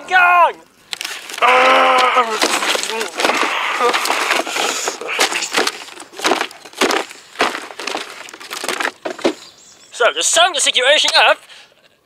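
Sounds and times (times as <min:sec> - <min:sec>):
sharp cracks and splintering impacts: 0:00.8 - 0:09.5.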